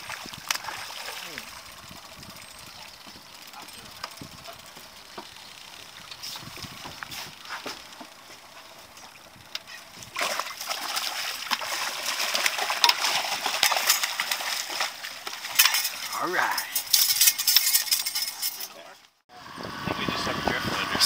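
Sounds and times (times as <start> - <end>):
fish splashing water: 0.0 - 2.0, 9.0 - 16.0.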